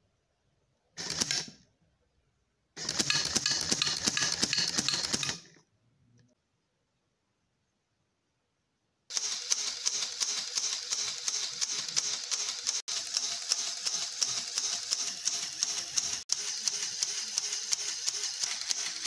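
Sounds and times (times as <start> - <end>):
plastic gears clattering: 2.8 - 5.6, 9.5 - 19.0.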